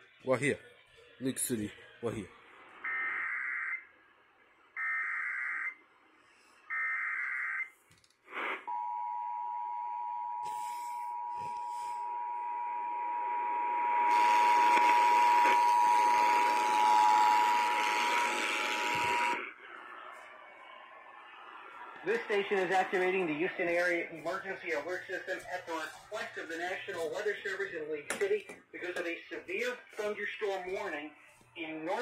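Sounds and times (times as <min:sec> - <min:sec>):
radio hiss: 0:08.3 - 0:08.8, 0:10.4 - 0:12.2, 0:13.3 - 0:28.0, 0:28.8 - 0:32.0
buzzy data bursts: 0:11.8 - 0:19.4.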